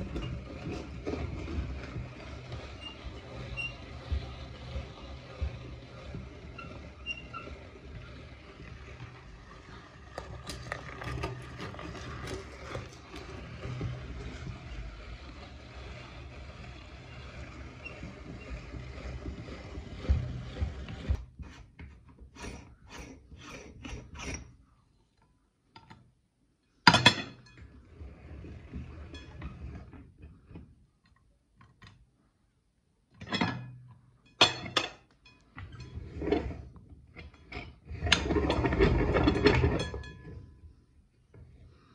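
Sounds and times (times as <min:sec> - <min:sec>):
meat grinder grinding: 0:00.0 - 0:21.7, 0:35.6 - 0:40.1
rattling metal scrape: 0:00.0 - 0:24.6, 0:27.1 - 0:30.5, 0:34.4 - 0:40.8.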